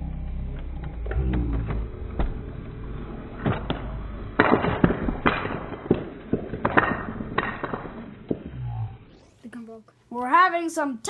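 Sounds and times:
wooden blocks clattering and falling: 0.7 - 8.6.

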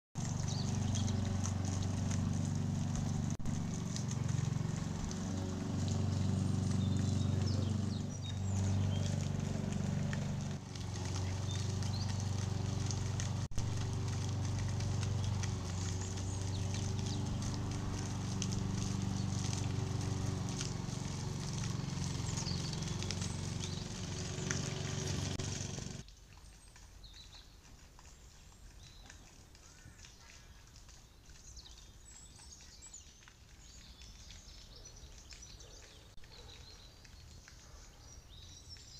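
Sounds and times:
machinery engine droning: 0.2 - 26.0.

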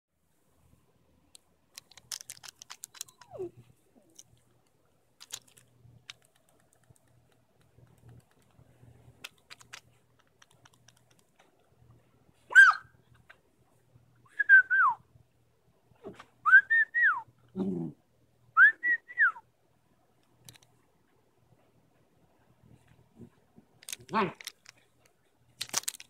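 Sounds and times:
puppy whining: 2.8 - 4.2.

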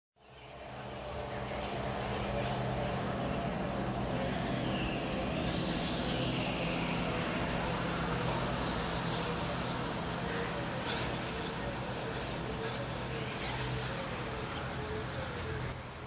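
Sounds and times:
faint high wavering whine: 0.2 - 16.0.

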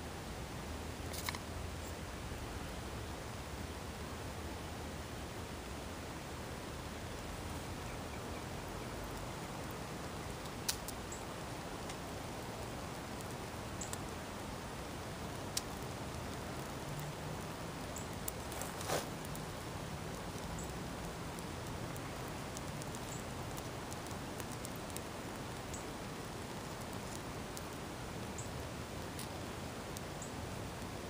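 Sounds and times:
fire crackles and pops: 0.4 - 31.0
fire hissing: 8.4 - 31.0.

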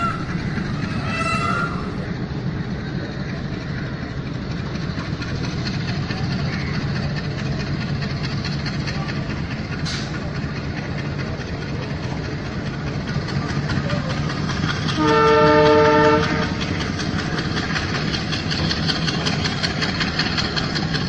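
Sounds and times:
diesel locomotive running: 0.0 - 21.0
wheels clicking on rails: 0.0 - 21.0
locomotive horn blast: 15.0 - 16.6.

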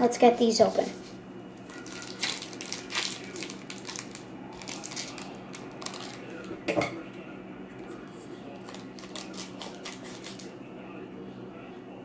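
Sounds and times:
foil wrappers crinkling: 1.6 - 6.7, 8.6 - 10.5.

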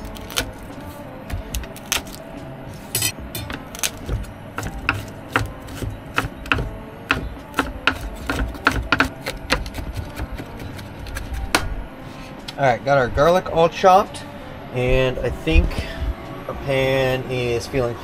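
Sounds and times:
knife chopping on cutting board: 3.0 - 11.6.

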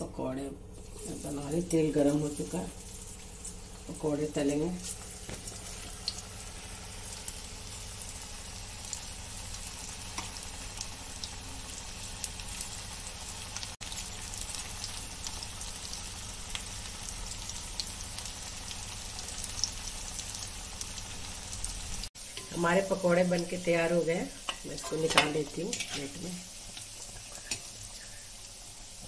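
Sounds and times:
food deep-frying in oil: 0.2 - 29.0
oil crackling: 4.6 - 22.3.

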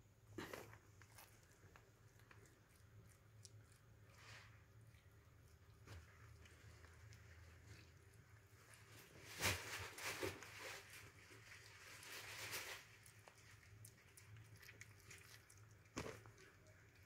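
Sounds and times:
cat chewing wet mouth sounds: 0.9 - 8.4, 12.8 - 17.0.

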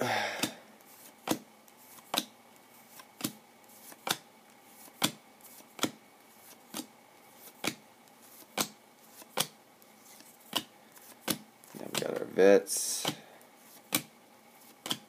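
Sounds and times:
trading cards snapping: 7.5 - 12.3, 13.0 - 15.0.

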